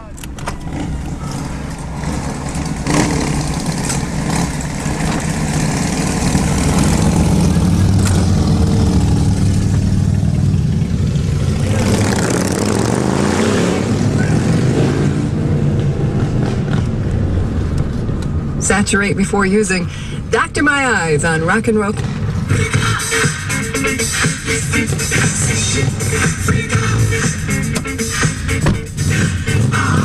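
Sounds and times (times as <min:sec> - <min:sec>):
motorcycles pulling away: 0:00.4 - 0:17.8, 0:21.9 - 0:30.0
motorcycle engine revving: 0:00.5 - 0:17.7, 0:21.9 - 0:30.0.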